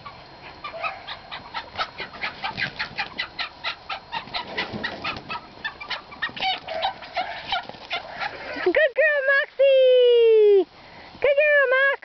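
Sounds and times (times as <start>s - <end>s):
chicks cheeping: 0.0s - 8.6s.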